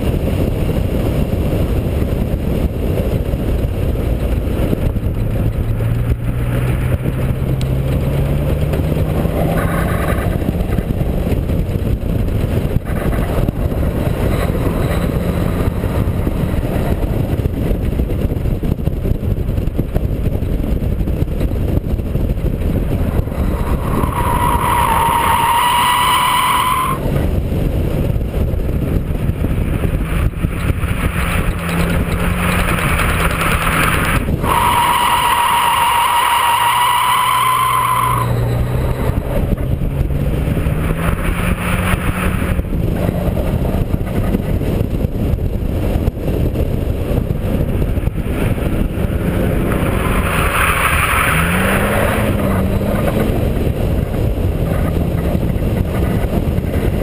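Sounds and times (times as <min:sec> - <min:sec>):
car engine running at speed: 0:00.0 - 0:57.0
wind buffeting microphone: 0:00.0 - 0:57.0
tyres squealing: 0:23.4 - 0:27.0, 0:34.4 - 0:39.2.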